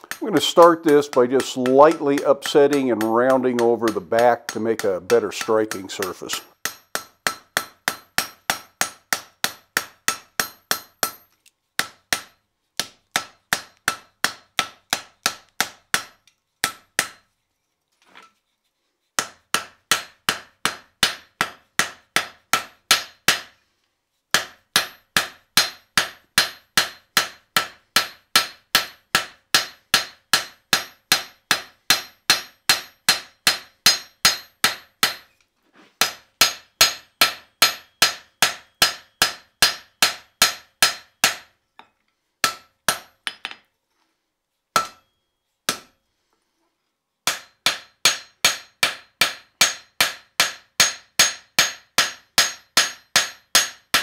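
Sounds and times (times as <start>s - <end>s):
hammer striking hot steel: 0.0s - 17.2s, 19.2s - 23.5s, 24.3s - 35.3s, 36.0s - 41.5s, 42.4s - 43.5s, 44.8s - 45.1s, 45.7s - 45.9s, 47.3s - 54.0s
anvil ringing: 44.8s - 45.8s.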